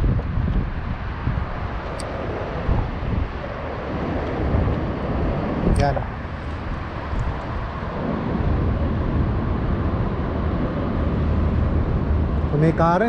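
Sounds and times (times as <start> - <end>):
road traffic rumble: 0.0 - 13.0.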